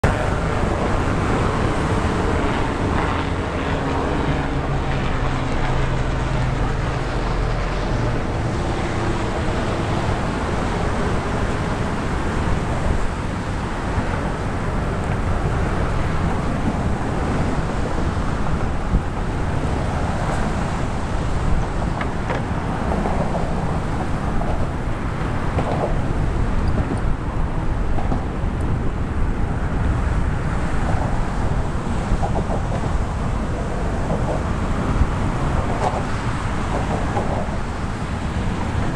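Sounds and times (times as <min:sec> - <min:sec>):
car traffic hum: 0:00.0 - 0:38.9
low engine hum: 0:00.0 - 0:38.9
wind buffeting microphone: 0:00.0 - 0:38.9.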